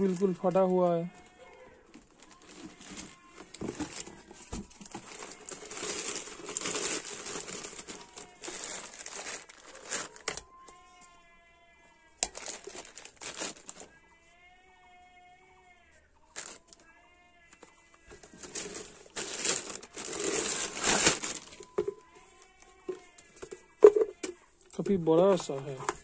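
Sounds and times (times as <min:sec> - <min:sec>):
plastic bags crinkling: 0:00.0 - 0:10.4, 0:12.2 - 0:13.9, 0:16.3 - 0:16.8, 0:18.0 - 0:26.0.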